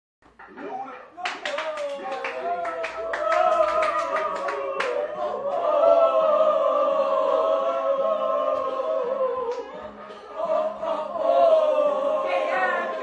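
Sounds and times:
sharp clap: 0:01.2 - 0:05.0
choir singing: 0:03.0 - 0:13.0.

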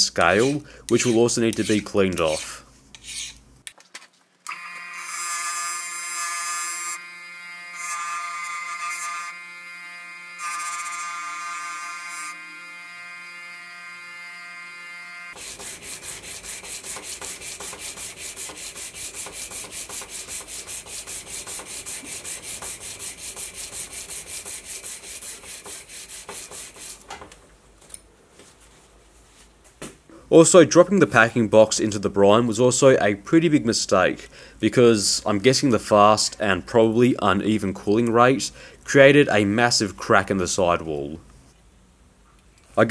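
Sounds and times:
bench motor whining: 0:04.5 - 0:15.7
hand sanding on abrasive paper: 0:15.4 - 0:27.0.

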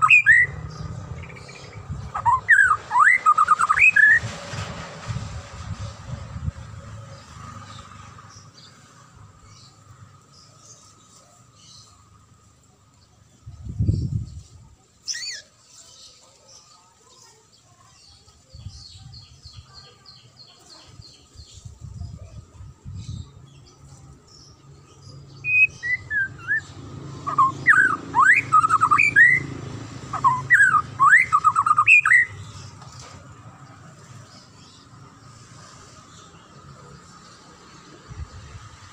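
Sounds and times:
bird singing whistled phrases: 0:00.0 - 0:00.5, 0:25.4 - 0:26.7, 0:27.3 - 0:29.5, 0:30.2 - 0:32.4.

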